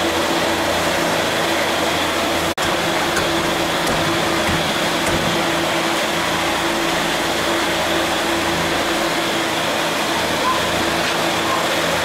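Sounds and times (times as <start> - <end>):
machine whirring: 2.4 - 11.4.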